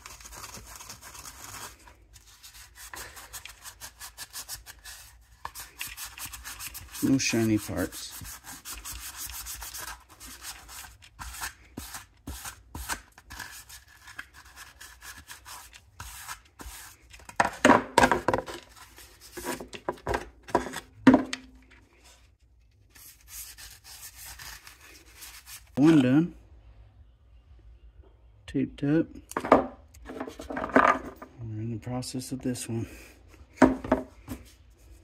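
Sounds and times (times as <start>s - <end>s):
scouring pad scrubbing plastic: 3.0s - 11.2s
plastic housing knocks and scrapes: 29.4s - 31.3s.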